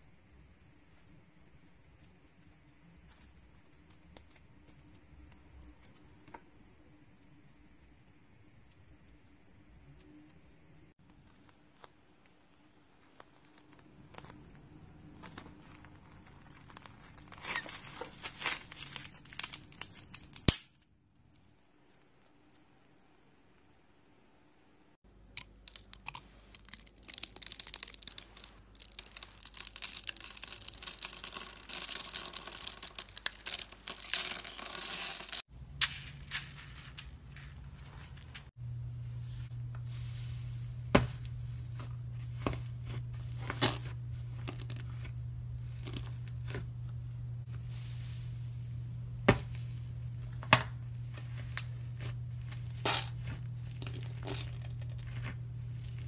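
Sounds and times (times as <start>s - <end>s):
slime crackling and tearing: 25.4s - 35.4s
low steady hum: 32.3s - 56.0s.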